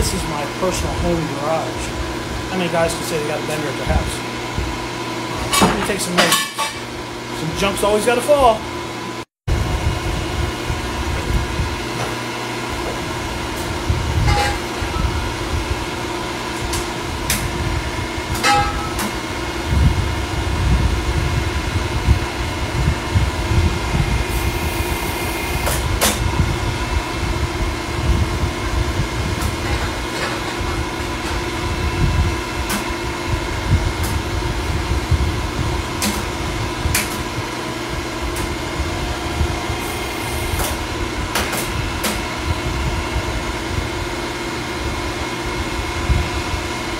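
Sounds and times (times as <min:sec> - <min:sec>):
pipe bender mechanical hum: 0:00.0 - 0:46.9
sharp metal clanks: 0:18.4 - 0:19.2.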